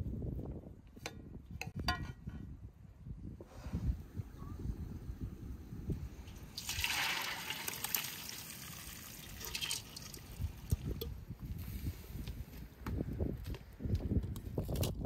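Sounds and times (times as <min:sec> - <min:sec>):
wet rice pouring into metal colander: 0:06.6 - 0:10.2.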